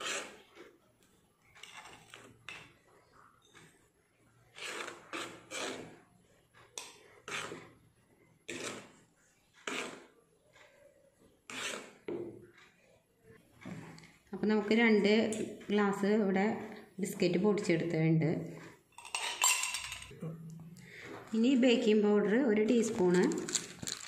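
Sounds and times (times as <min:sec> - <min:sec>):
spoon scraping a plate: 0:00.0 - 0:00.4, 0:04.5 - 0:06.0, 0:06.6 - 0:07.8, 0:08.5 - 0:09.0, 0:09.6 - 0:10.1, 0:11.5 - 0:12.1.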